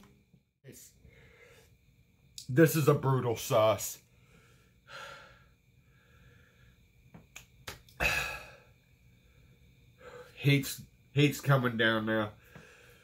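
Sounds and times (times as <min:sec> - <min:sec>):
man blowing out hard breaths: 0:08.0 - 0:08.7.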